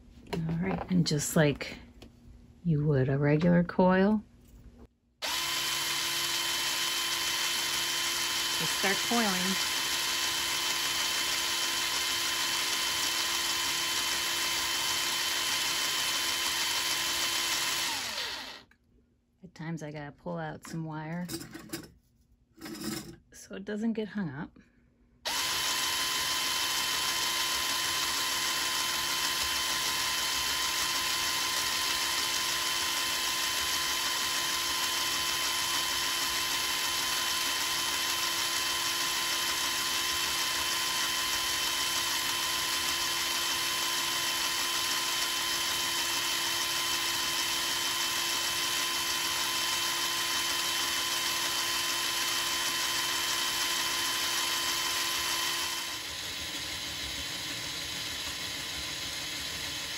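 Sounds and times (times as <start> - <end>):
cordless drill motor whine: 5.2 - 18.7, 25.3 - 59.9.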